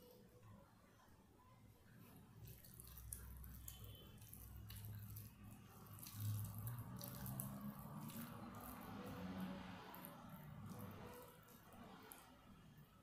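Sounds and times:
fingers squishing wet rice: 0:02.3 - 0:12.4.

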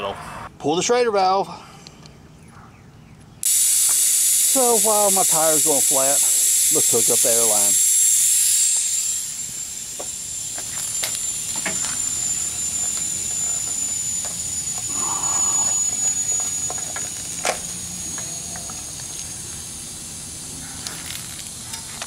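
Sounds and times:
air hose coupler clicks: 0:03.4 - 0:05.0, 0:10.0 - 0:12.1
air hissing out of tire valve: 0:03.4 - 0:22.0.

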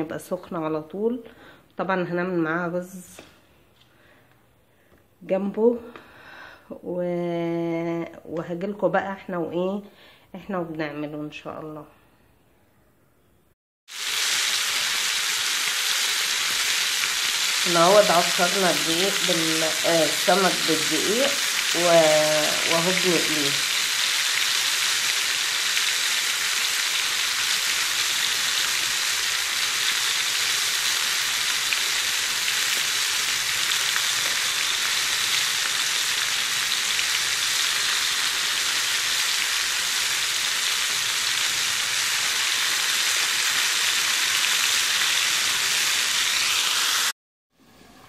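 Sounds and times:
fish sizzling in hot oil: 0:13.9 - 0:47.1.

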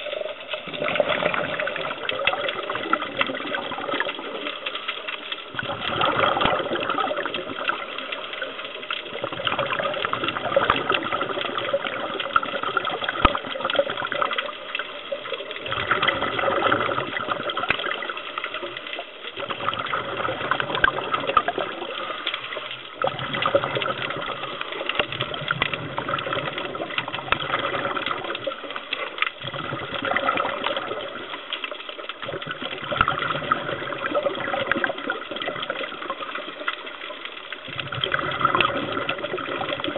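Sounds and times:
scuba breathing and bubbles: 0:00.0 - 0:39.9.

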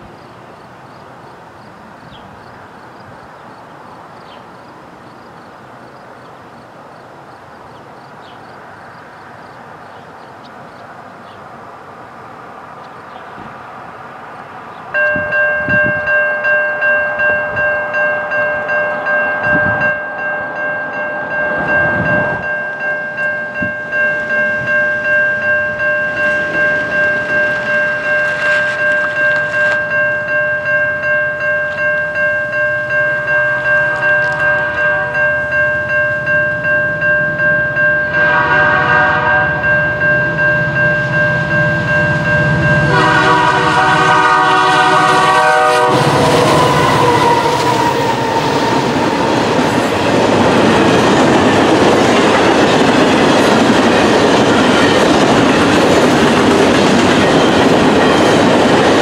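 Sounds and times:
freight train rumbling: 0:00.0 - 0:59.0
railway crossing bell ringing: 0:14.9 - 0:59.0.

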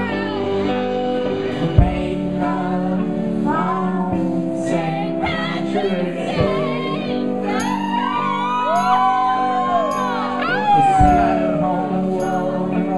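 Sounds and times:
electric guitar: 0:00.0 - 0:12.9
woman singing lead: 0:00.0 - 0:12.9
low drum thumps: 0:01.6 - 0:02.7, 0:10.8 - 0:11.7
man singing: 0:01.6 - 0:07.4, 0:10.4 - 0:12.9.

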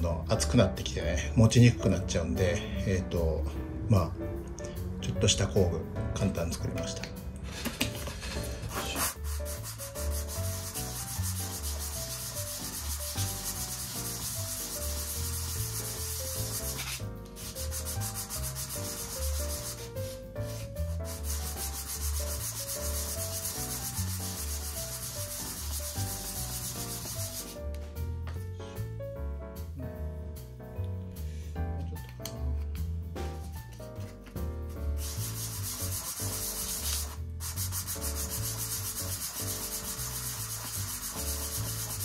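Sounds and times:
background music: 0:00.0 - 0:42.0
metal ring sanding on sandpaper: 0:08.3 - 0:27.6, 0:35.0 - 0:42.0.

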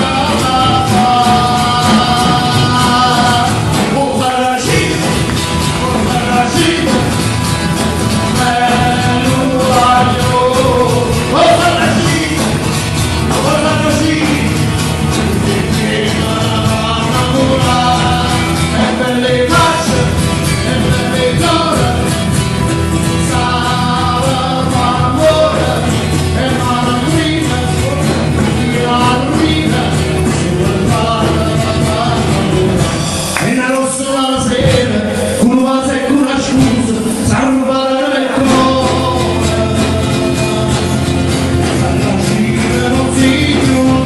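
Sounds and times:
live band amplified music: 0:00.0 - 0:44.0
man singing into a microphone: 0:00.0 - 0:44.0.

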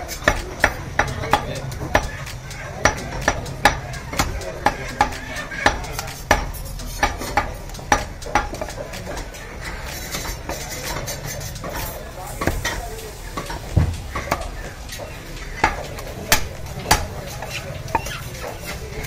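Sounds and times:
cleaver chopping meat on wood: 0:00.0 - 0:09.3, 0:12.4 - 0:12.8, 0:15.5 - 0:18.7.

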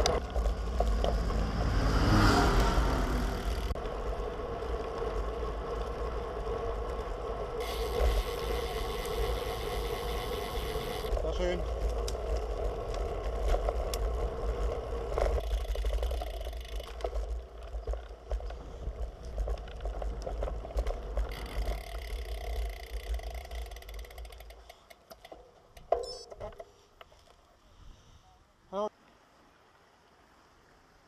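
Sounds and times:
wind rumbling on camera: 0:00.0 - 0:24.4
bike rattling and clicking: 0:00.0 - 0:27.4.

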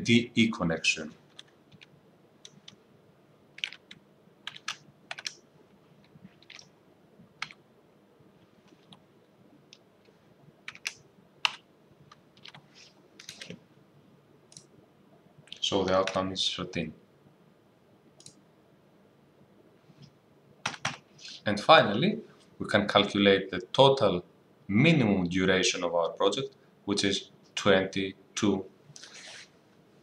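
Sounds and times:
keyboard keystrokes: 0:03.6 - 0:05.4, 0:06.4 - 0:06.7.

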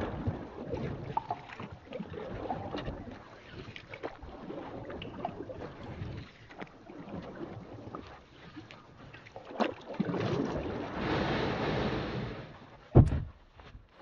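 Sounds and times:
small clicks and splashes: 0:00.0 - 0:10.8
water lapping and sloshing: 0:00.0 - 0:14.0.

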